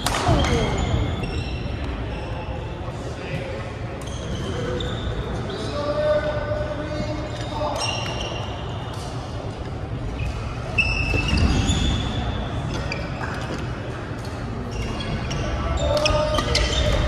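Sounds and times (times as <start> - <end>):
sneakers squeaking on wooden floor: 0.2 - 2.6, 7.0 - 8.9, 10.1 - 13.7, 14.6 - 17.0.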